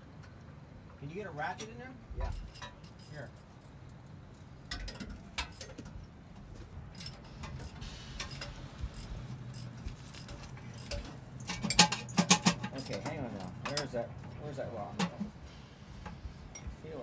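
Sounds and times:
low steady hum: 0.0s - 17.0s
metal tools clinking on metal: 1.4s - 15.4s, 16.0s - 17.0s
metal clatter: 1.6s - 4.0s, 4.6s - 15.4s.

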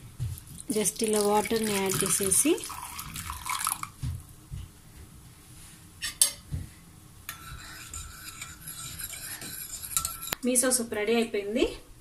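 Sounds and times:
spoon clinking against bowl: 7.3s - 10.4s.

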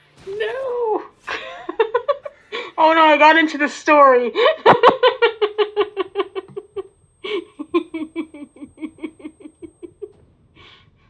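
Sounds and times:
woman giggling: 1.2s - 2.9s, 4.3s - 10.2s.

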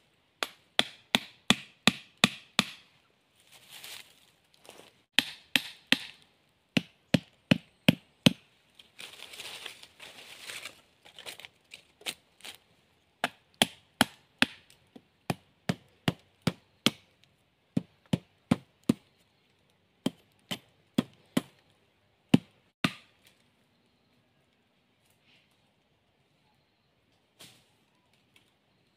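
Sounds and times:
machete chopping wood: 0.4s - 2.9s, 5.2s - 6.2s, 6.8s - 8.4s, 13.2s - 17.0s, 17.8s - 19.0s, 22.3s - 23.1s.

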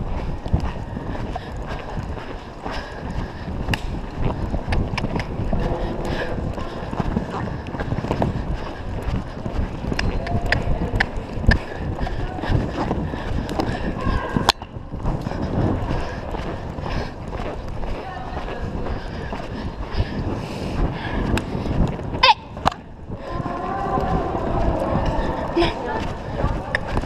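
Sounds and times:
hooves cantering on sand: 0.0s - 27.0s
wind rumble on microphone: 0.0s - 27.0s.

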